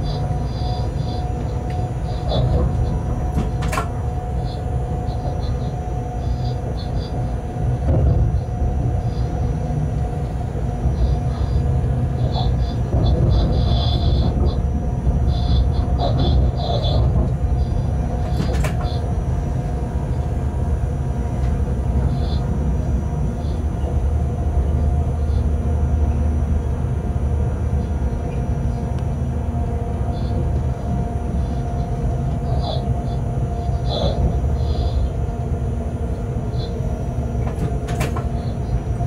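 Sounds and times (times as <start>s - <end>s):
train rumbling along track: 0.0s - 39.0s.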